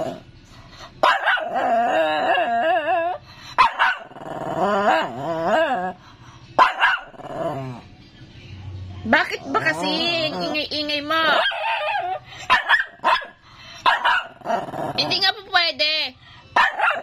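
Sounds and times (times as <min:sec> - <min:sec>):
small dog barking: 0:01.0 - 0:01.6, 0:03.6 - 0:04.1, 0:06.6 - 0:07.2, 0:11.3 - 0:14.4, 0:16.6 - 0:17.0
dog whining: 0:01.1 - 0:06.0, 0:09.4 - 0:12.2.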